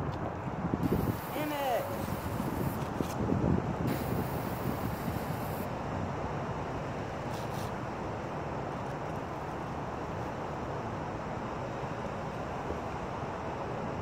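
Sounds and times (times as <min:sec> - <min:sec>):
wind on the microphone: 0:00.0 - 0:06.2
road traffic rumble: 0:00.0 - 0:14.0
high hiss: 0:00.8 - 0:02.9, 0:03.9 - 0:05.7.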